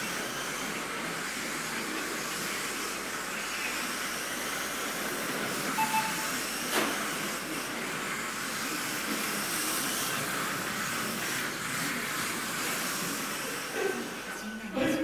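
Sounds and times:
electric toy car motors whining: 0:00.0 - 0:14.7
short beep: 0:05.8 - 0:06.4.

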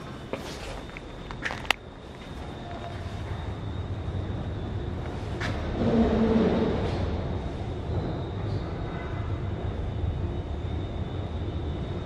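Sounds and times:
footsteps: 0:00.0 - 0:03.5.

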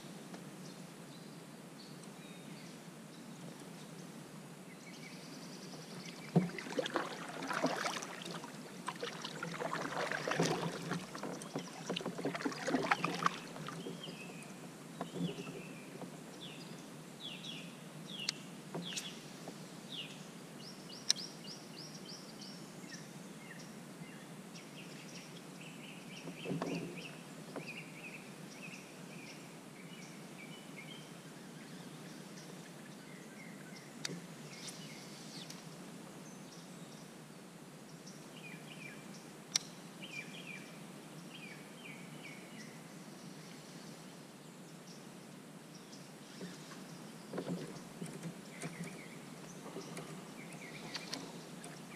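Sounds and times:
birds chirping and trilling: 0:45.7 - 0:51.9.

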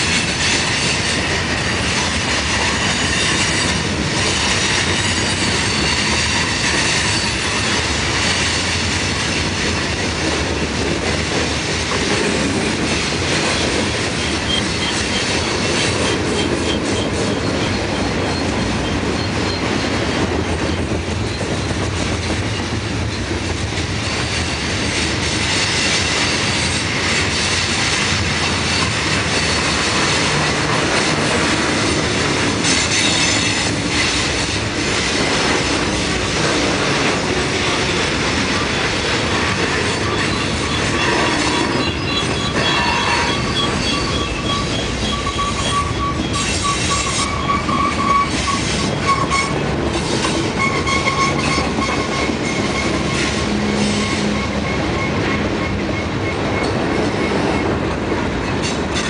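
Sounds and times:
train wheels rumbling on rail: 0:00.0 - 0:59.0
wheel squeal: 0:40.0 - 0:57.3.

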